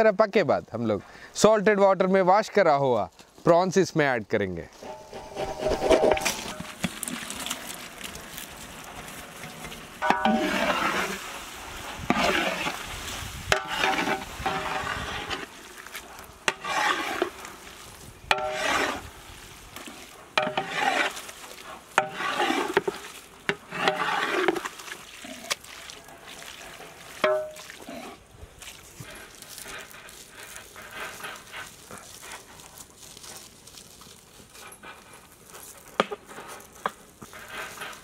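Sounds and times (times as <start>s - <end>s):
metal spatula scraping pot: 4.7s - 8.1s, 8.9s - 19.2s, 19.8s - 28.2s
low sizzle: 4.7s - 34.4s.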